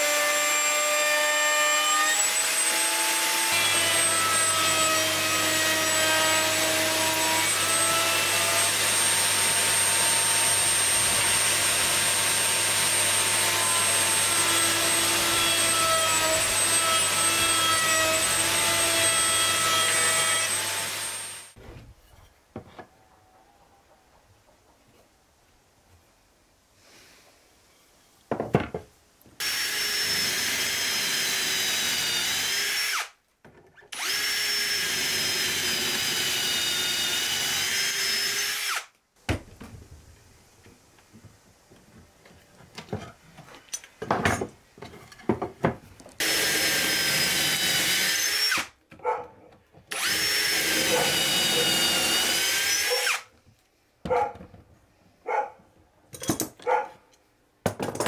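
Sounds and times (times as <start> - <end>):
electric drill boring into wood: 0.0 - 21.6, 29.4 - 33.2, 33.9 - 38.9, 46.2 - 48.7, 49.9 - 53.3.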